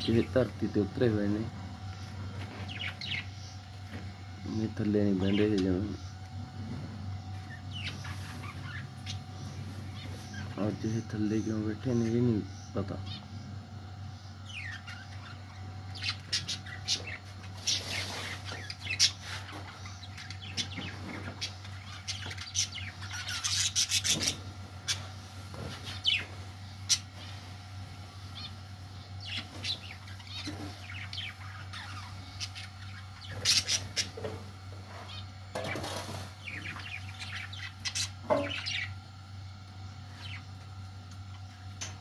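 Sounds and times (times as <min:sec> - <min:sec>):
steady low hum: 0:00.0 - 0:42.0
budgerigars chirping: 0:02.0 - 0:03.7, 0:07.3 - 0:13.2, 0:14.2 - 0:27.3, 0:28.3 - 0:34.4, 0:35.1 - 0:39.0, 0:40.1 - 0:40.5.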